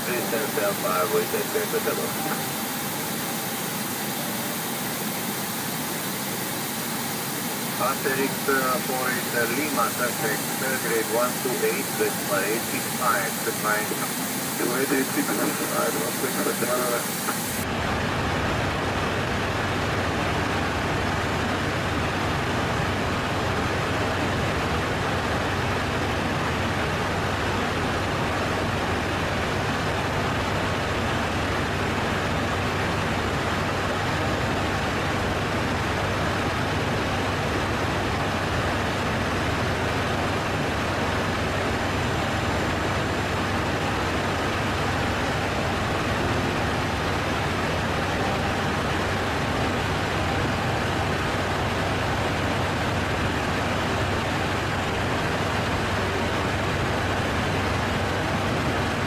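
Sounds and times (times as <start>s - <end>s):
airliner cabin drone: 0.0s - 59.0s.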